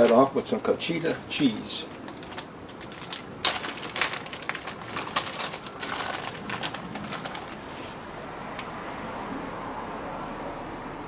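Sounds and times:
plastic bag crinkling: 1.0 - 8.0.

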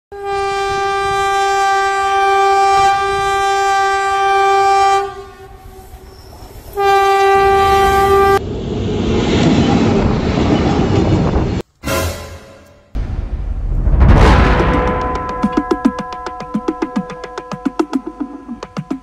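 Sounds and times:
locomotive horn blast: 0.1 - 6.1, 6.7 - 8.4, 11.8 - 12.9, 14.4 - 19.0
train passing rumble: 4.8 - 19.0.

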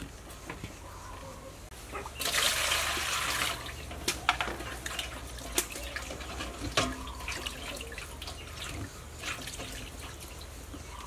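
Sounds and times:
water poured into metal basin: 2.2 - 3.8.

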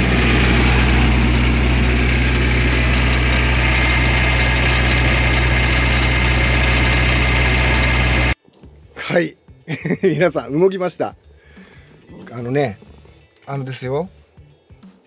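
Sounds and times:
diesel engine idling: 0.0 - 8.4.

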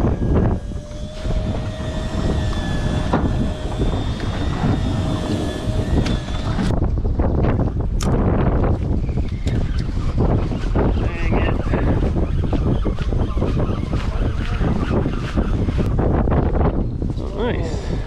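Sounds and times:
thin mechanical whine: 0.0 - 8.3
wind buffeting microphone: 0.0 - 18.0.

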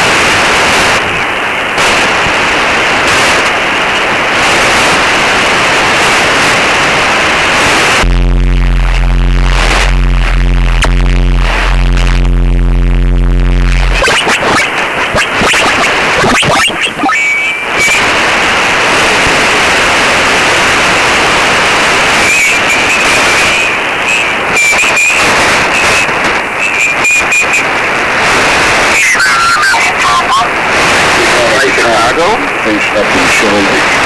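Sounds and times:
radio static hiss: 0.0 - 34.0
static crackles: 0.0 - 34.0
radio whistles: 13.5 - 18.4, 22.2 - 30.6.

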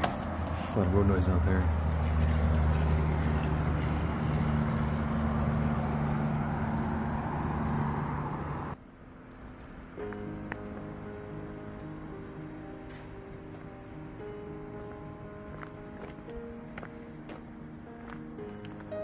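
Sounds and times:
traffic drone: 0.0 - 19.0
soft music: 9.6 - 19.0.

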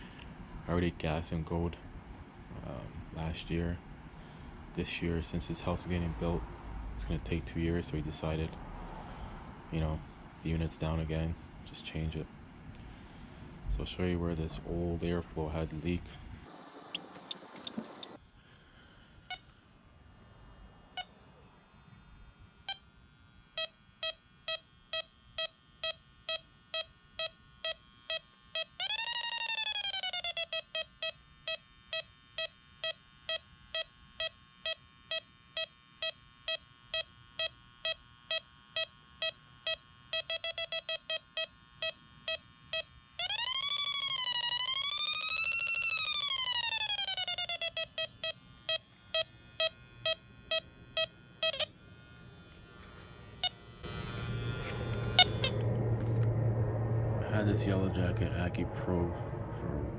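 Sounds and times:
leak detector beeping: 16.5 - 18.2, 19.2 - 19.6, 22.6 - 58.2
rising and falling alarm tone: 23.5 - 35.7, 40.1 - 59.9.

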